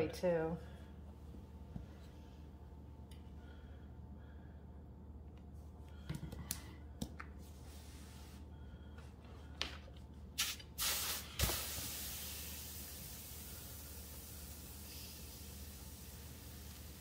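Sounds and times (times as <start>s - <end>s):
steam hissing: 10.4s - 17.0s.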